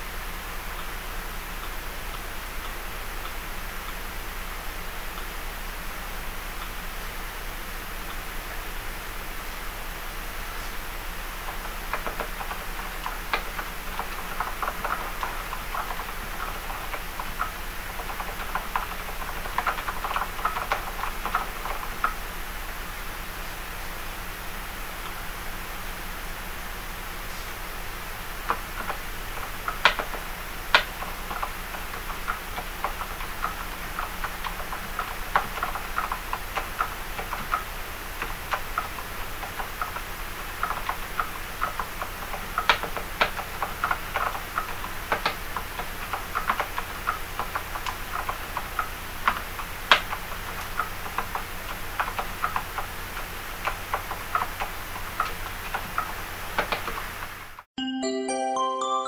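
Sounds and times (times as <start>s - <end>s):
soft keyboard typing: 10.5s - 22.3s, 28.2s - 57.3s.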